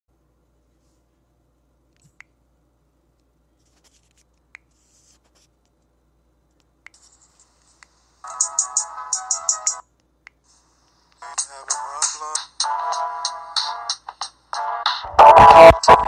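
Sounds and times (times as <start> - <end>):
low steady hum: 0.1 - 12.8.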